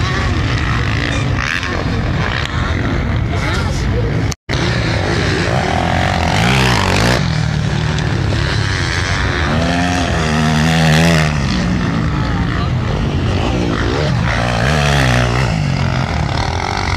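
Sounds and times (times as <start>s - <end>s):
motocross bike engines revving: 0.0s - 16.9s.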